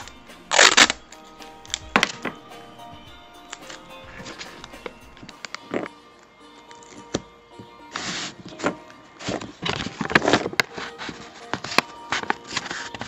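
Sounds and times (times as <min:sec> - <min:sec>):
quiet background music: 0:00.0 - 0:13.0
paper bag rustling and crinkling: 0:08.5 - 0:13.0.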